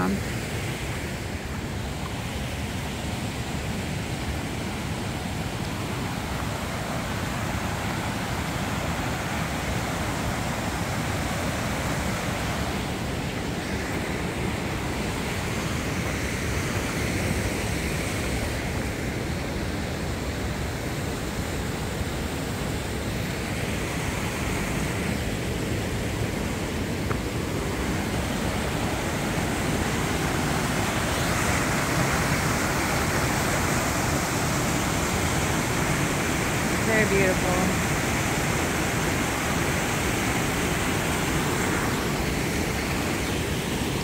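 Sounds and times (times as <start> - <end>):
water rushing over rocks: 0.0 - 44.0.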